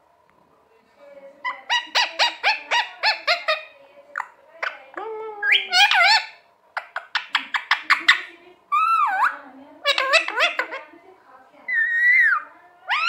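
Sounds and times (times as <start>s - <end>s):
parakeet calling: 1.4s - 10.9s, 11.6s - 13.0s.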